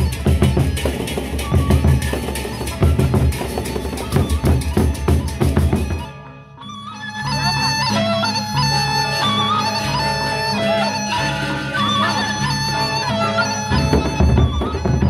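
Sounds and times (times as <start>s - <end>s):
barrel drums beating rapidly: 0.0s - 6.1s, 13.8s - 15.0s
high wavering melody: 0.0s - 15.0s.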